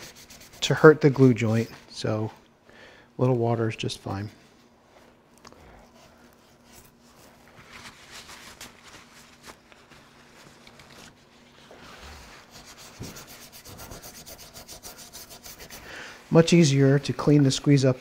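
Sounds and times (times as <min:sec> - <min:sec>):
toothbrush scrubbing wood: 0:00.0 - 0:01.2, 0:12.2 - 0:17.4.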